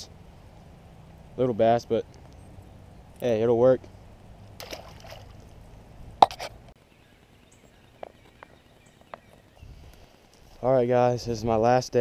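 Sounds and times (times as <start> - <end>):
fish splashing in water: 4.6 - 5.6.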